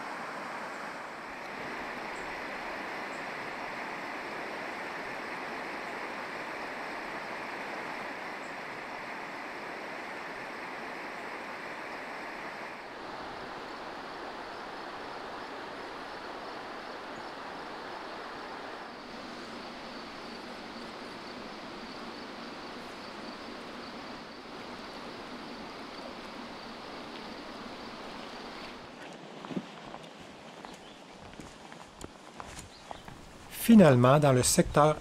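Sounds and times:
river water rushing over rapids: 0.0 - 30.5.

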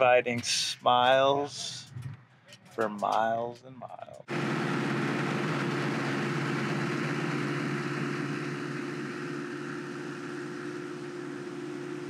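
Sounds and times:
propeller aircraft engine droning: 4.2 - 12.0.

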